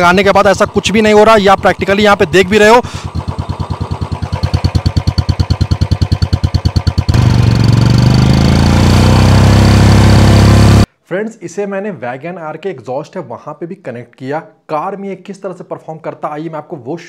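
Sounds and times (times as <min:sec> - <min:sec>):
motorcycle engine running: 0:00.0 - 0:10.9.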